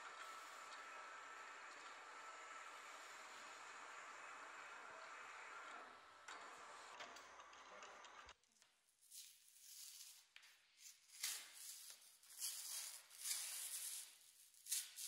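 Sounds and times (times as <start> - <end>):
artificial leather rustling and scraping: 9.1 - 15.0.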